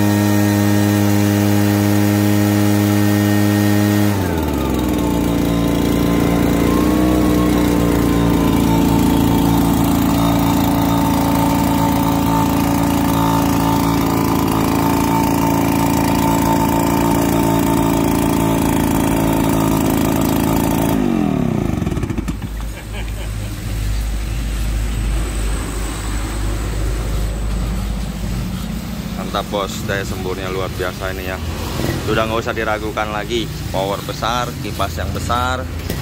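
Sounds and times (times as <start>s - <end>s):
leaf blower engine idling: 0.0s - 23.7s.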